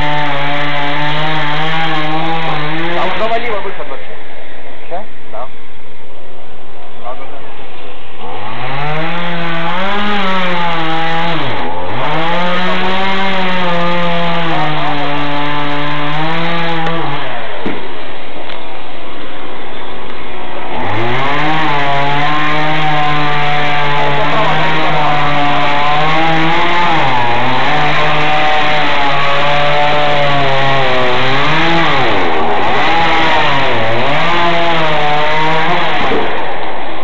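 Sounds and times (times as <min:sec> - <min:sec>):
chainsaw cutting wood: 0:00.0 - 0:03.4, 0:08.2 - 0:17.9, 0:20.6 - 0:36.8.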